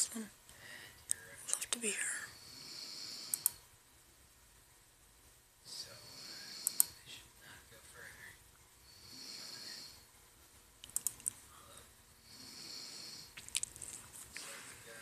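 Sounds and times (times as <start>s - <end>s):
faint hissing rasp: 1.9s - 3.6s, 5.7s - 10.1s, 11.5s - 15.0s
woman snoring: 2.1s - 3.5s, 8.9s - 10.0s, 12.2s - 13.4s
computer mouse clicks: 3.3s - 3.6s, 6.6s - 7.0s, 10.8s - 11.4s.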